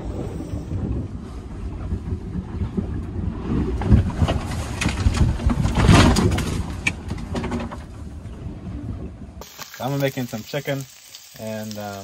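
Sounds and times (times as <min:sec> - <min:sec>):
waves washing over boat deck: 0:00.0 - 0:09.4.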